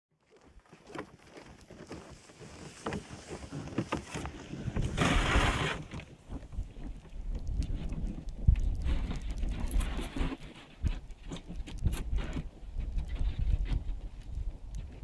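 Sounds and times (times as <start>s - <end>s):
hooves and runners crunching snow: 0.2s - 15.0s
wind on microphone: 4.5s - 15.0s.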